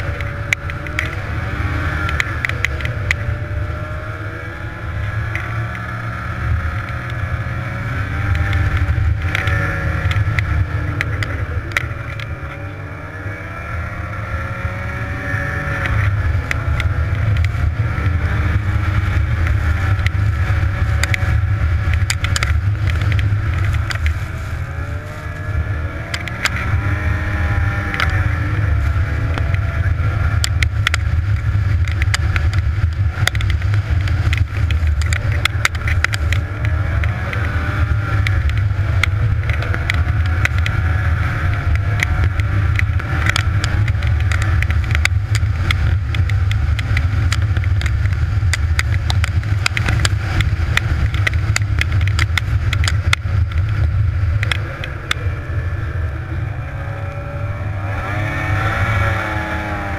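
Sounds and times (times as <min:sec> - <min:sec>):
sharp ticks and knocks: 0:00.0 - 0:56.2
snowmobile engine running: 0:00.0 - 0:59.9.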